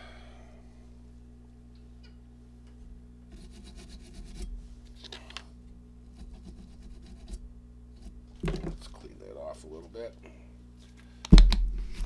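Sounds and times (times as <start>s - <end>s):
steady low hum: 0.0s - 12.0s
brush scrubbing circuit board: 3.3s - 4.5s, 6.1s - 7.4s.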